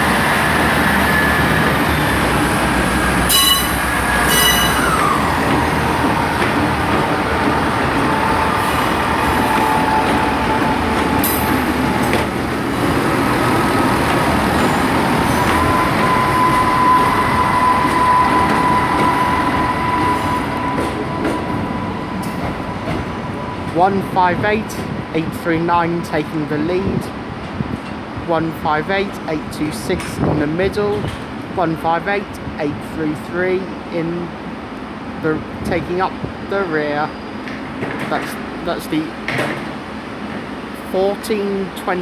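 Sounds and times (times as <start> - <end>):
diesel train engine and rail noise: 0.0 - 42.0
steady high tone: 14.7 - 23.7.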